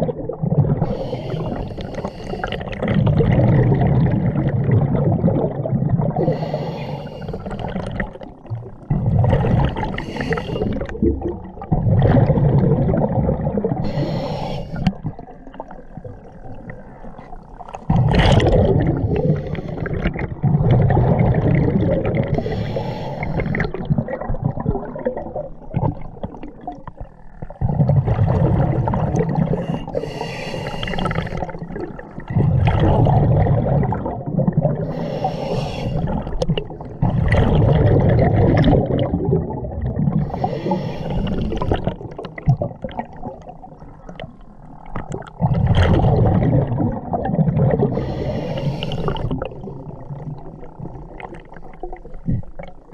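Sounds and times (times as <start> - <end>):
exhaled bubbles underwater: 0.0 - 52.9
regulator inhale hiss: 0.8 - 2.6, 6.2 - 7.6, 9.9 - 10.9, 13.8 - 15.0, 22.3 - 23.7, 29.5 - 31.6, 34.8 - 36.2, 40.2 - 41.7, 47.9 - 49.4.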